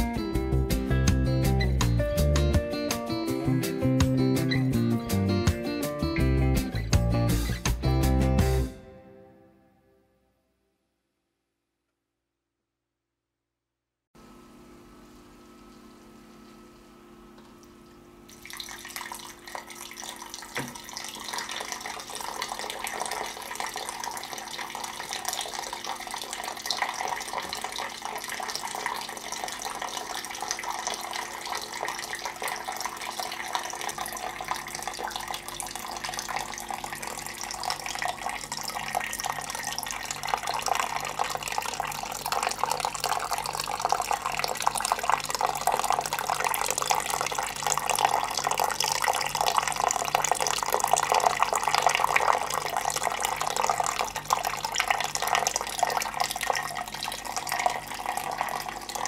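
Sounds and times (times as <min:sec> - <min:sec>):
water splashing into pool: 0:17.4 - 0:59.0.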